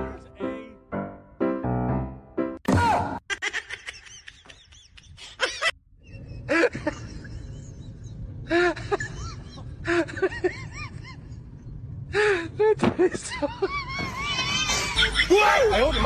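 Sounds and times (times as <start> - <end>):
low background rumble: 4.8 - 16.0.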